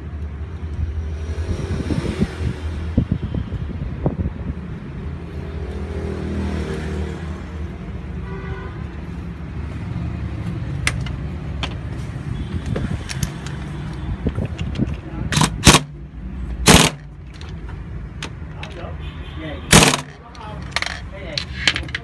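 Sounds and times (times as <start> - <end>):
traffic rumble: 0.0 - 22.0
sharp metal clicks: 13.1 - 16.0, 16.6 - 18.8, 19.7 - 22.0.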